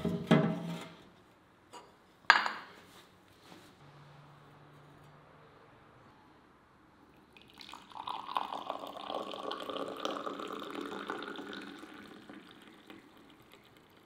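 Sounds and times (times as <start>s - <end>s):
tea pouring into a glass: 7.1s - 14.0s.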